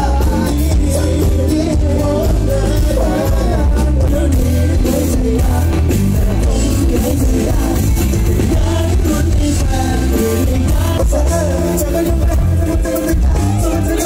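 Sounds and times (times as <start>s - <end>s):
lead singer: 0.0s - 14.0s
live pop band playing: 0.0s - 14.0s.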